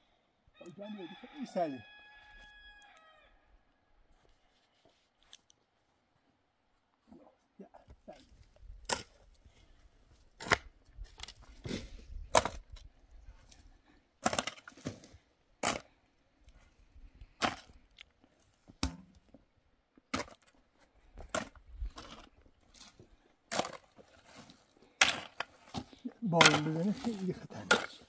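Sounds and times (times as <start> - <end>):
soil scraping: 8.0 - 12.7, 20.1 - 28.0
digging tool striking stony dirt: 8.8 - 9.3, 10.4 - 12.9, 14.2 - 16.0, 17.4 - 17.8, 20.1 - 20.6, 21.2 - 22.9, 23.5 - 28.0.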